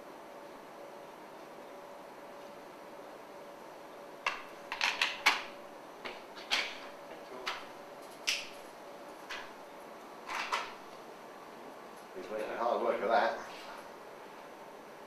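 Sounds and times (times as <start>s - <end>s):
faint steady hum: 0.0s - 15.0s
hard objects clicking and knocking: 4.3s - 7.7s.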